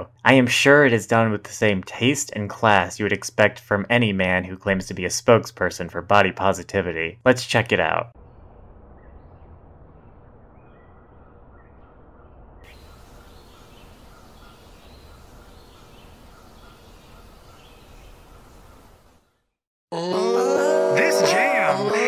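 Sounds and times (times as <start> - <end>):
low rumble: 8.2 - 15.7
small birds chirping: 8.2 - 19.6
steady hiss: 12.7 - 19.1.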